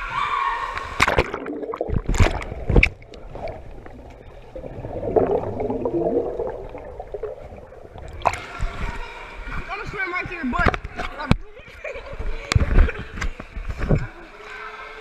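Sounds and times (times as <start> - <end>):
water splashing: 0.8 - 9.0
muffled underwater sound: 1.2 - 9.1.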